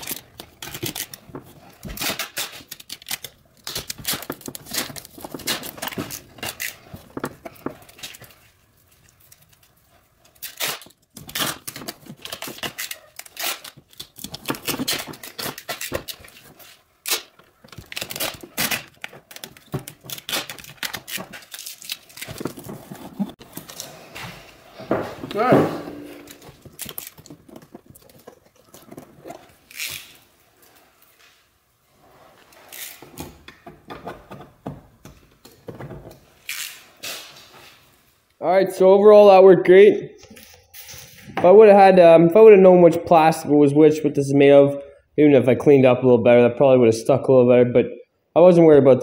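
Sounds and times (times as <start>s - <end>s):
foil tape crackling and tearing: 0.0s - 23.9s, 26.3s - 30.2s.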